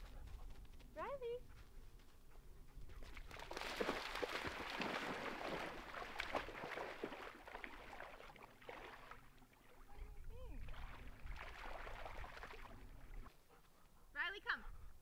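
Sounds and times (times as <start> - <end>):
water splashing at lake edge: 3.0 - 13.3.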